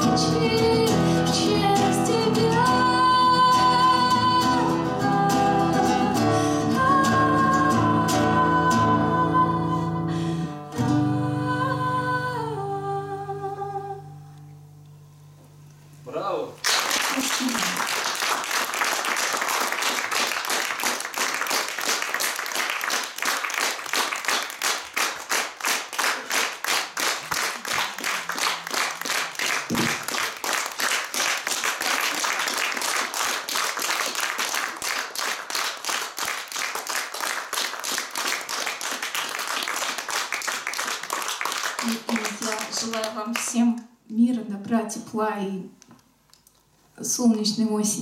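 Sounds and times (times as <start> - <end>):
audience applauding: 16.6 - 43.5.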